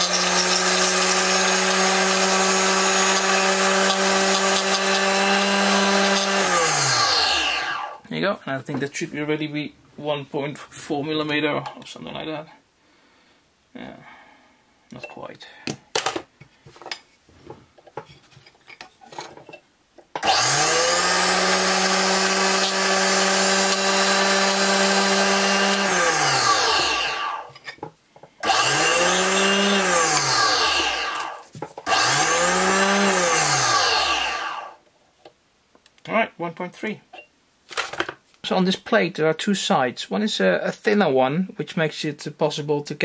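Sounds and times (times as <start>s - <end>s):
drill press motor spinning: 0.0s - 8.0s, 20.2s - 27.5s, 28.4s - 34.8s.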